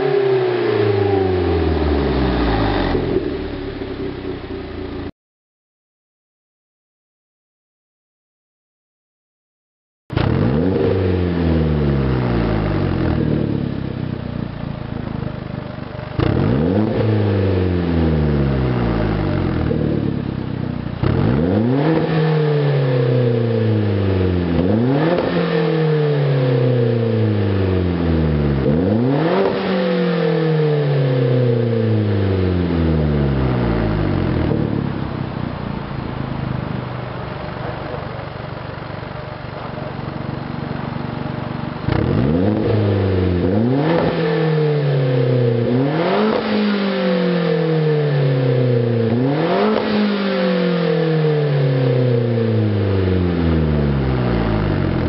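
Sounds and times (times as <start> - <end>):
car engine revving and idling: 0.0 - 5.1, 10.1 - 55.0.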